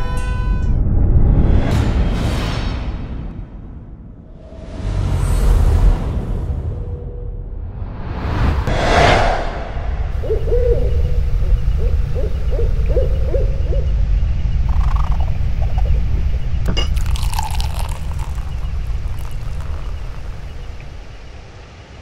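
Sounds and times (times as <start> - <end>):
low night rumble: 5.7 - 22.0
owl hooting: 10.2 - 16.5
liquid pouring into a glass: 14.7 - 16.0, 16.6 - 21.0.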